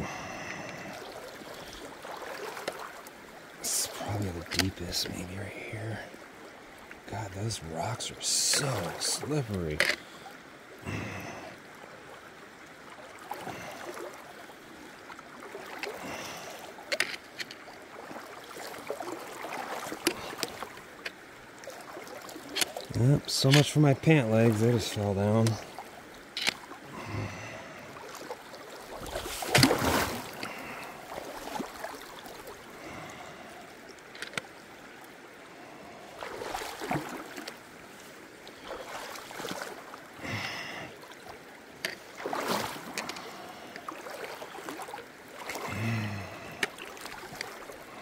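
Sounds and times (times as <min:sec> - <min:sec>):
feet splashing in water: 0:00.0 - 0:03.2, 0:13.0 - 0:33.4, 0:36.0 - 0:48.0
river water rushing: 0:00.0 - 0:48.0.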